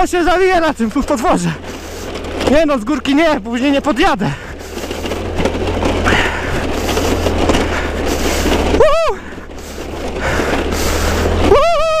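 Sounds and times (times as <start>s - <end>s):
scooter engine running: 0.0s - 12.0s.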